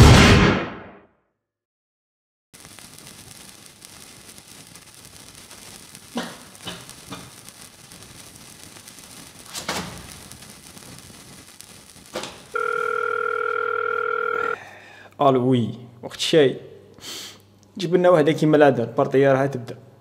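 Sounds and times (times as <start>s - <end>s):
faint hiss: 2.6s - 12.6s, 17.0s - 17.8s
electronic telephone tone: 12.5s - 14.6s.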